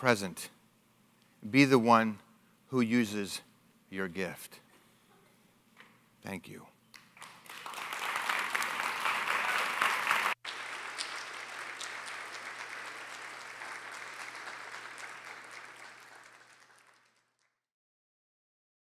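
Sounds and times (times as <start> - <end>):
audience applauding: 7.0 - 17.6.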